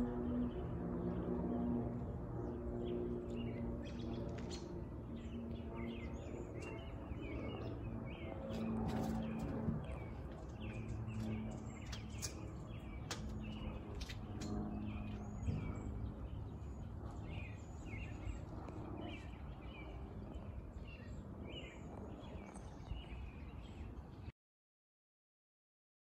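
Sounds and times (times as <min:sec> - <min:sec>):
aircraft engines droning: 0:00.0 - 0:24.3
small songbirds chirping: 0:03.3 - 0:24.0.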